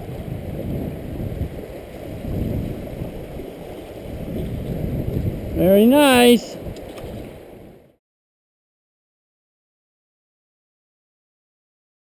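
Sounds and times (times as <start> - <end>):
rumbling wind and water: 0.0 - 8.0.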